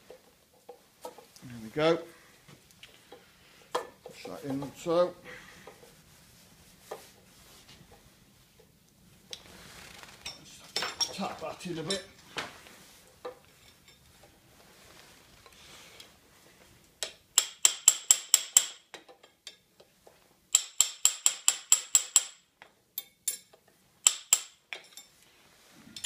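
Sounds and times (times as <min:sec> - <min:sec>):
metal-on-metal tapping: 0:17.0 - 0:19.6, 0:20.5 - 0:25.1.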